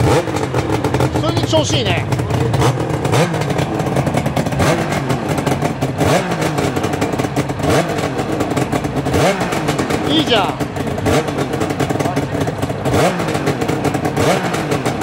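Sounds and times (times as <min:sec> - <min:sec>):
two-stroke engine revving: 0:00.0 - 0:15.0.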